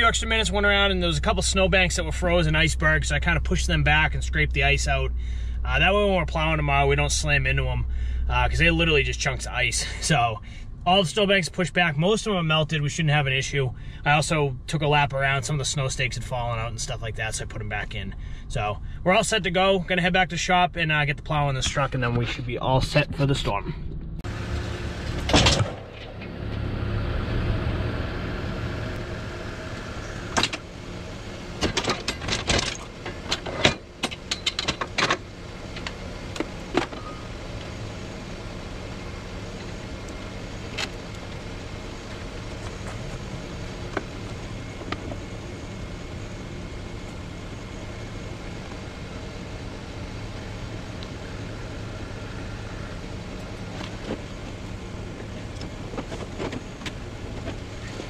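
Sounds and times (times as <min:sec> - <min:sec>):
truck engine idling: 0:00.0 - 0:58.0
sharp metal clanks and clicks: 0:31.6 - 0:35.2.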